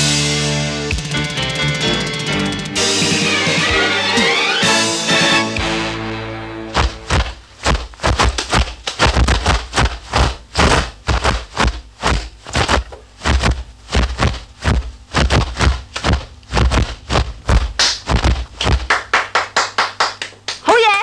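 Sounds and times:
sharp swishes and thuds: 0:06.7 - 0:18.9.

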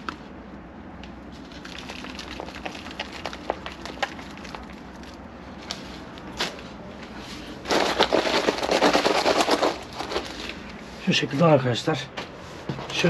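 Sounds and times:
soil crackling and pattering: 0:01.4 - 0:06.6.

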